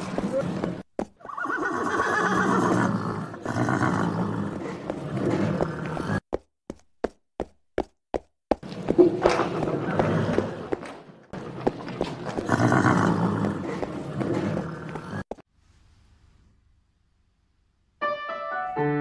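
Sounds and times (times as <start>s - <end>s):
hooves clip-clopping: 0.0s - 2.4s, 4.5s - 15.4s
horse neighing and snorting: 1.2s - 6.2s, 12.4s - 15.2s.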